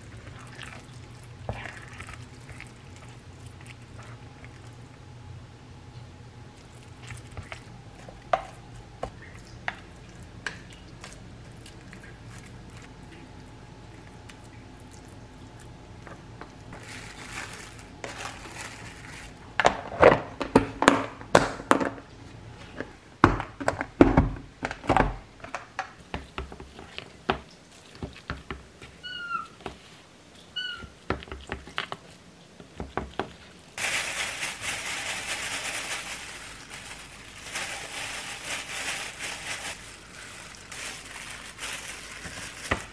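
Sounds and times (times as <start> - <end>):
plastic gloves crinkling: 0.0 - 5.0, 6.4 - 13.6, 16.6 - 20.0, 26.4 - 42.9.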